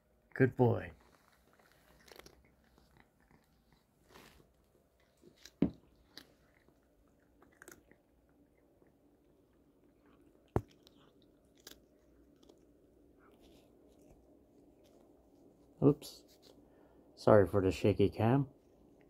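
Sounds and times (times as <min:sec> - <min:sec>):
cat crunching treats: 0:01.0 - 0:15.5.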